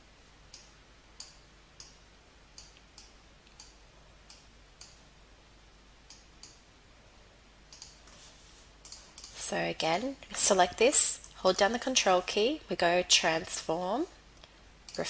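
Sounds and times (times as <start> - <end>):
faint computer mouse clicks: 7.7 - 8.1, 8.8 - 9.4.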